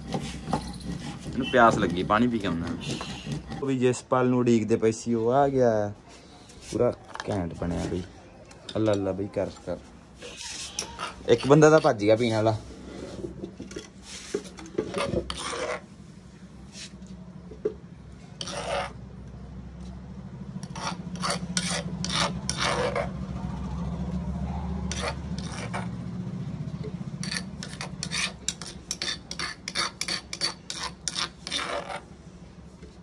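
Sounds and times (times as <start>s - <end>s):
pestle grinding in stone mortar: 0.0s - 3.8s, 10.4s - 12.5s, 13.3s - 15.9s, 18.3s - 19.0s, 20.5s - 26.2s, 26.8s - 32.1s.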